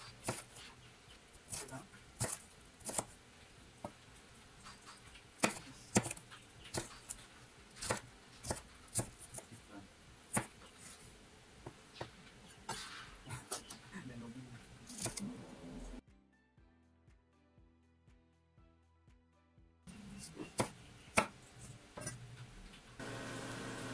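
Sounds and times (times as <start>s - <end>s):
knife chopping on wooden board: 0.0s - 0.7s, 1.5s - 3.2s, 4.8s - 9.5s, 10.3s - 10.6s, 20.5s - 21.4s.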